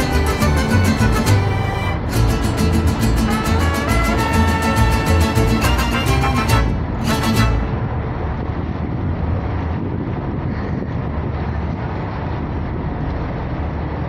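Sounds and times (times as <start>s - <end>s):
music: 0.0s - 7.8s
low rumble of wind and engine: 0.0s - 14.0s.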